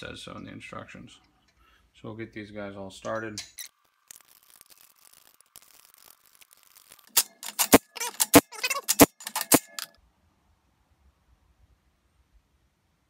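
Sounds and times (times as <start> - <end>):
impact driver bursts: 7.1 - 9.9.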